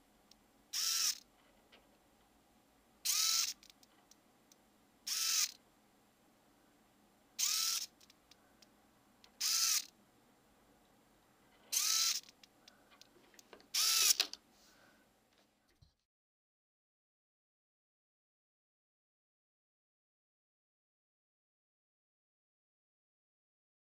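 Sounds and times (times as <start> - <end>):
micro servo whirring: 0.8 - 1.2, 3.0 - 3.7, 5.1 - 5.6, 7.4 - 8.0, 9.4 - 9.9, 11.7 - 12.4, 13.7 - 14.3.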